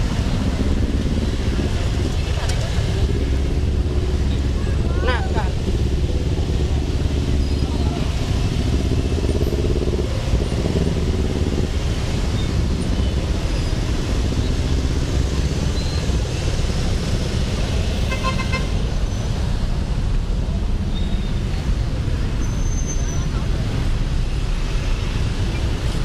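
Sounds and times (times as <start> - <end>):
city road traffic: 0.0 - 26.0
car horn toot: 18.1 - 18.8.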